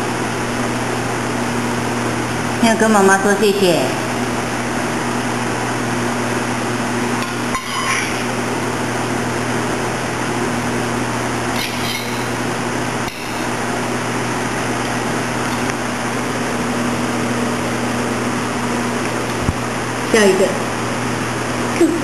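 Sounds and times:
low hum: 6.1s - 19.3s
spoon clinking on metal bowl: 7.2s - 8.3s, 13.1s - 13.6s.

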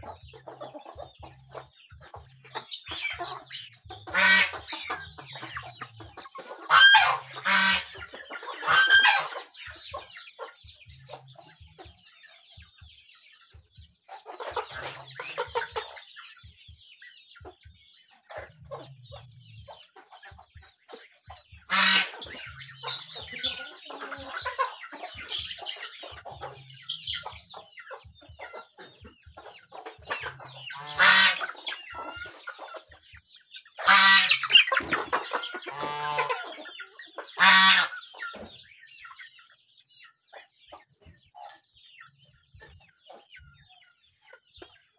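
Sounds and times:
beaks pecking on dirt: 0.0s - 17.2s, 19.6s - 39.3s
chickens clucking: 0.0s - 44.9s
loud chicken call: 4.1s - 4.7s, 6.6s - 8.0s, 8.6s - 9.4s, 21.7s - 22.4s, 30.7s - 31.6s, 33.8s - 36.6s, 37.4s - 38.0s.

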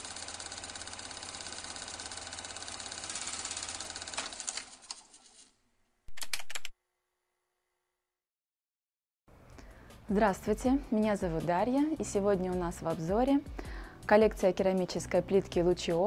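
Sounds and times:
fast mechanical clicking rattle: 0.0s - 5.1s.

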